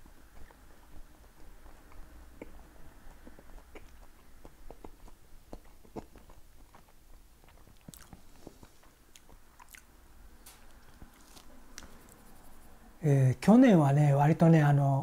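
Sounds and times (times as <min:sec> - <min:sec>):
chewing toast: 0:00.0 - 0:12.2
mouth clicks: 0:00.3 - 0:06.8.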